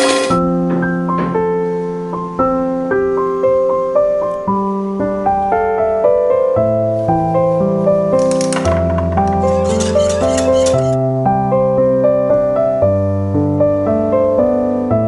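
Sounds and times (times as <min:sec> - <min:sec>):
piano melody: 0:00.0 - 0:15.0.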